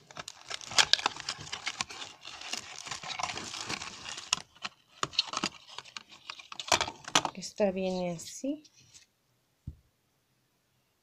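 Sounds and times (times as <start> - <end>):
plastic wrapping rustling: 0.0 - 8.3.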